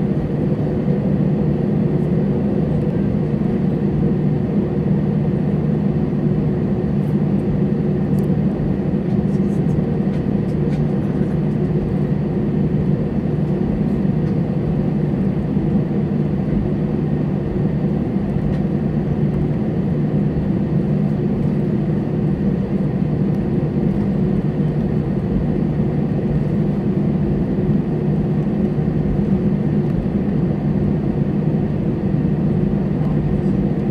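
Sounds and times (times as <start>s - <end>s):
airliner jet engine drone in cabin: 0.0s - 33.9s.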